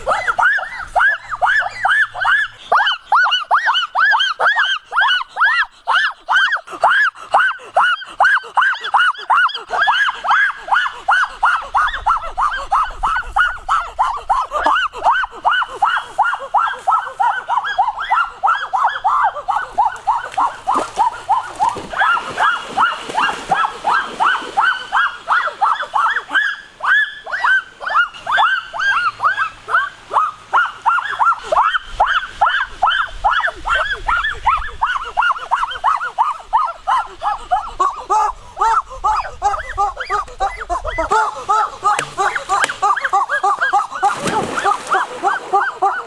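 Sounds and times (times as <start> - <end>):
animal yelping: 0.0 - 46.0
child yelping: 33.3 - 46.0.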